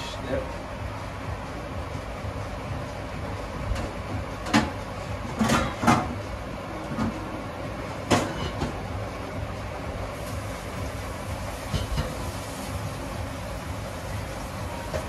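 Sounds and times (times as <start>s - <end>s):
stove rumble: 0.0s - 15.0s
metal utensils clanking on pot: 11.7s - 12.2s.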